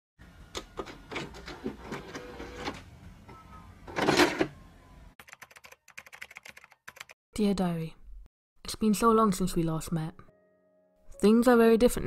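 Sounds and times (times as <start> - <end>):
typing on laptop keyboard: 5.2 - 7.2.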